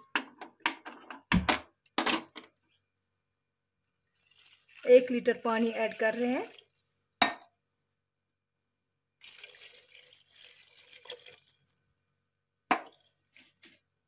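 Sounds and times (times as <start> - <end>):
water pouring and splashing: 4.1 - 6.9, 9.2 - 11.8.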